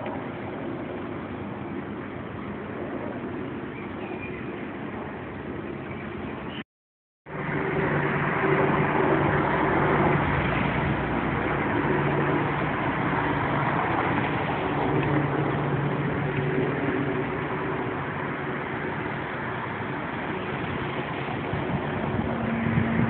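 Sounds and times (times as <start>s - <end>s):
constant rushing noise: 0.0s - 6.6s, 7.3s - 23.0s
engine running: 7.3s - 23.0s.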